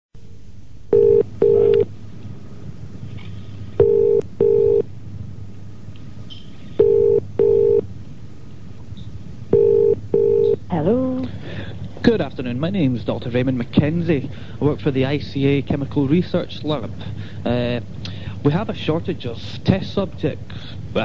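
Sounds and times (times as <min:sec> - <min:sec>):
low line hum: 0:00.2 - 0:19.4
telephone ringing tone: 0:00.9 - 0:01.9, 0:03.8 - 0:04.9, 0:06.8 - 0:07.8, 0:09.5 - 0:10.6.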